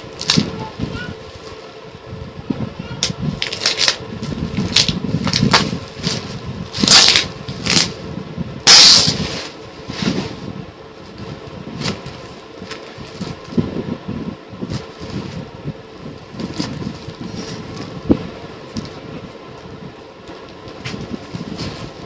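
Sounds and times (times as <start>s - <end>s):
plastic packaging crinkling: 3.3s - 8.0s.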